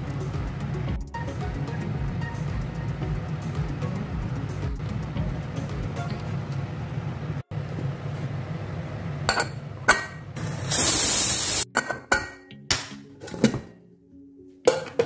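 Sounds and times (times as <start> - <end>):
background music: 0.0 - 7.4, 11.0 - 15.0
pressure cooker steam hiss: 10.4 - 11.7.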